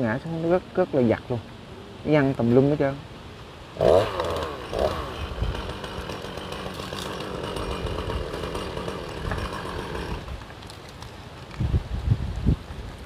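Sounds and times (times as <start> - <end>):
chainsaw cutting branch: 3.8 - 10.8.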